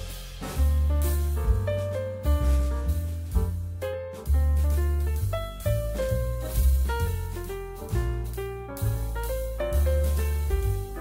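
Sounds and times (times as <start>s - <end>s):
music with strong bass line: 0.0s - 11.0s.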